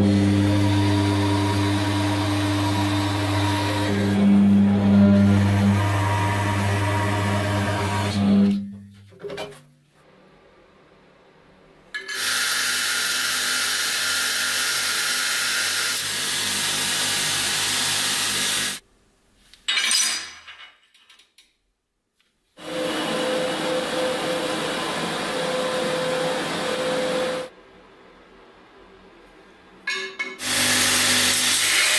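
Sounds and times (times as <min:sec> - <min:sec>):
power tool working steel: 0:00.0 - 0:08.7, 0:12.0 - 0:18.8, 0:22.6 - 0:27.5, 0:30.4 - 0:31.9.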